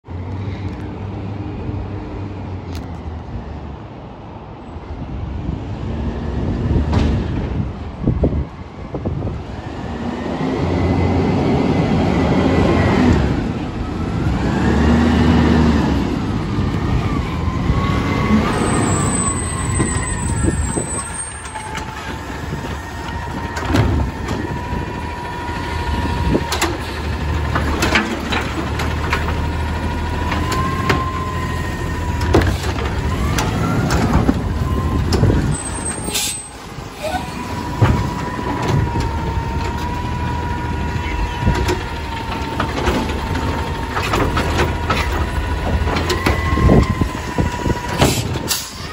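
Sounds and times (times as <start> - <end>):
truck diesel engine: 5.4 - 48.9
brief high squeal: 35.5 - 37.4.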